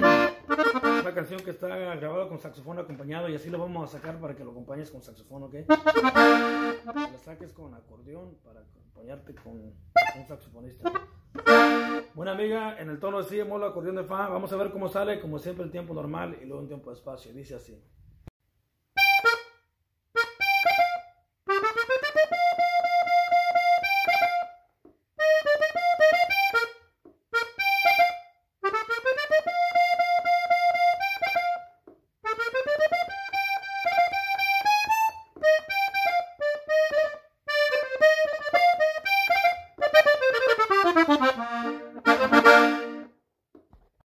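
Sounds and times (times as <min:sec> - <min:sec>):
button accordion melody: 0:00.0 - 0:02.7, 0:05.7 - 0:07.5, 0:09.9 - 0:12.3, 0:19.0 - 0:43.2.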